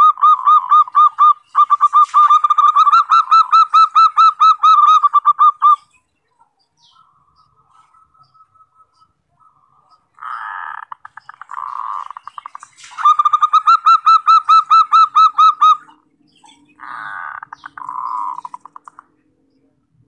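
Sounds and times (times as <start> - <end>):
dove rattling coo: 0.0 - 5.8
dove ringing notes: 0.0 - 6.1, 6.7 - 19.1.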